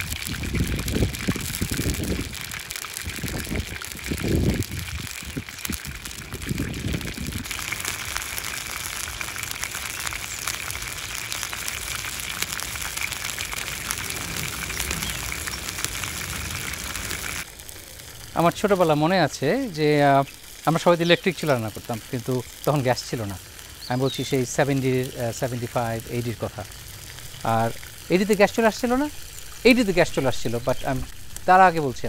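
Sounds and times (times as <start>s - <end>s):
low uneven rumbles: 0.0s - 23.4s
chicken deep-frying in oil: 0.0s - 32.0s.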